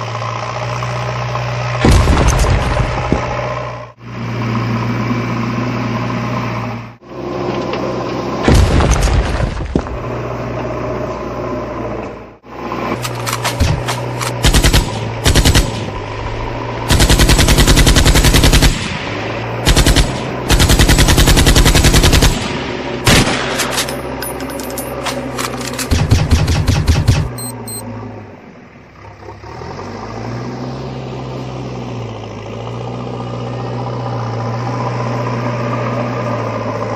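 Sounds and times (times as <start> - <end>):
tank engine rumble: 0.0 - 36.9
machine-gun fire: 13.6 - 16.0, 16.9 - 19.0, 19.6 - 23.6, 25.9 - 27.4.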